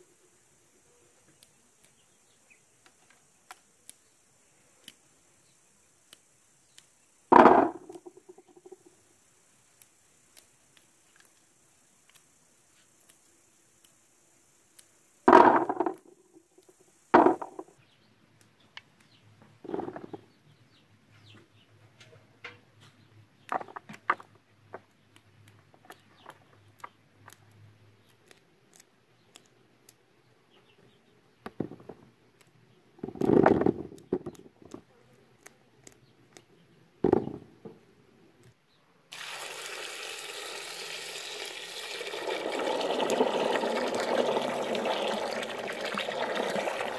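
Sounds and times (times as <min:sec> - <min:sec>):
single grapes ticking: 0:01.2 - 0:08.9, 0:09.7 - 0:17.8, 0:23.4 - 0:38.6
grapes pouring into plastic basin: 0:15.3 - 0:16.0, 0:39.1 - 0:46.9.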